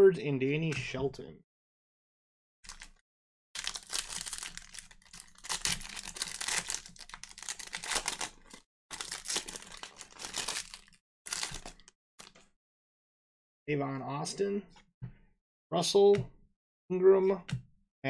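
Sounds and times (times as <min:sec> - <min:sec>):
card pack wrappers crinkling and tearing: 0:02.7 - 0:03.0, 0:03.6 - 0:12.3.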